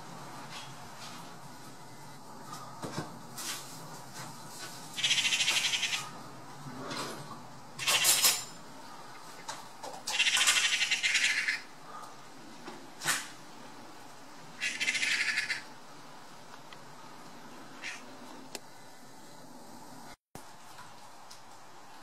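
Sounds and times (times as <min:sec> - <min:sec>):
magpies rattling chatter: 0:05.0 - 0:06.2, 0:07.8 - 0:08.4, 0:10.0 - 0:11.7, 0:14.6 - 0:15.7, 0:17.8 - 0:18.1.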